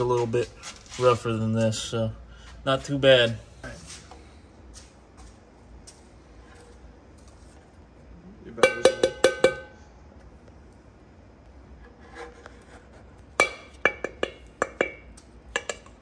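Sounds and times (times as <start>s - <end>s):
metal scraper tapping steel bowl: 8.6s - 9.7s, 13.4s - 16.0s.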